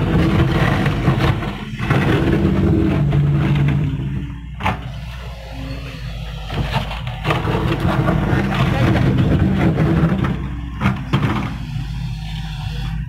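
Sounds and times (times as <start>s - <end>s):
bucket digging dirt and rock: 0.0s - 4.9s, 6.5s - 11.7s
excavator diesel engine: 0.0s - 13.0s.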